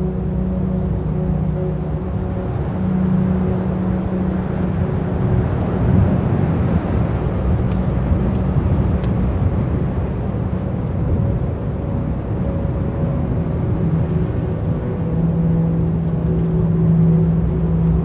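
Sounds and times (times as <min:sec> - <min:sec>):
strong wind buffeting microphone: 0:00.0 - 0:18.0.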